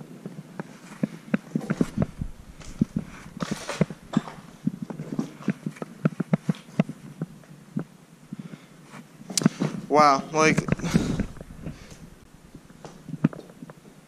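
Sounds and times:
footsteps crunching over rocks: 0:01.5 - 0:05.9.

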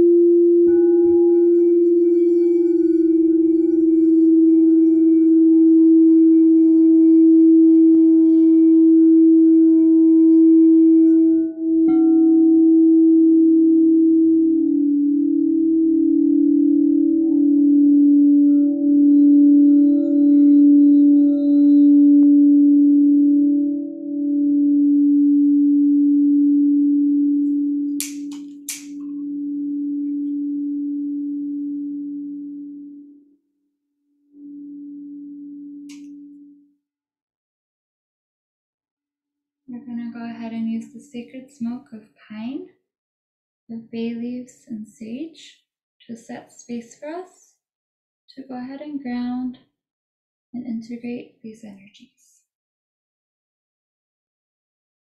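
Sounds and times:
singing bowl sustained tone: 0:00.0 - 0:33.3, 0:34.3 - 0:36.7.

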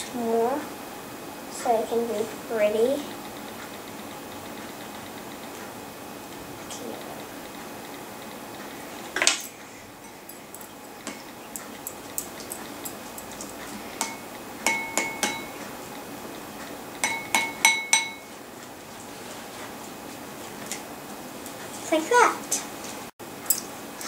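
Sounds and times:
spoon clinking on ceramic bowl: 0:14.0 - 0:15.6, 0:17.0 - 0:18.3.

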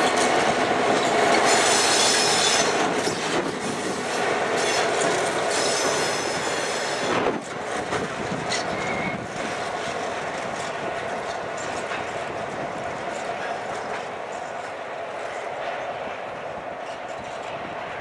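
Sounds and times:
freight train rolling past: 0:00.0 - 0:18.0
high-pitched wheel squeal: 0:01.3 - 0:03.3, 0:05.5 - 0:07.1, 0:08.5 - 0:09.2.

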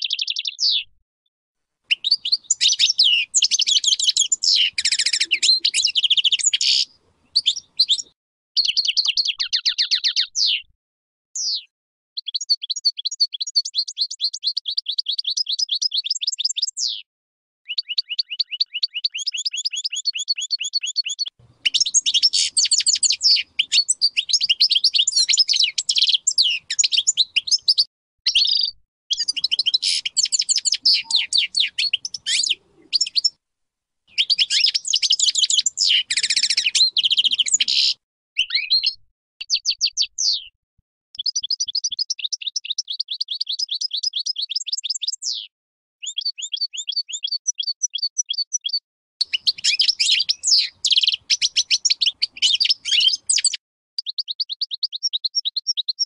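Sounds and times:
goldfinch singing: 0:00.0 - 0:00.9, 0:01.9 - 0:10.7, 0:11.4 - 0:17.0, 0:17.7 - 0:33.4, 0:34.1 - 0:40.5, 0:41.2 - 0:56.0.

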